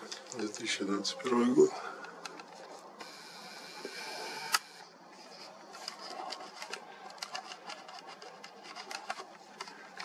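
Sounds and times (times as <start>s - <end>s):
camera handling noise: 2.0s - 10.0s.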